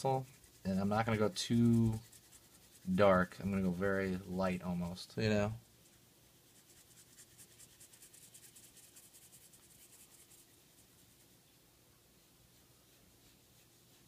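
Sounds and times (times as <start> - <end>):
pencil scratching on paper: 0.0 - 4.1, 6.5 - 10.5.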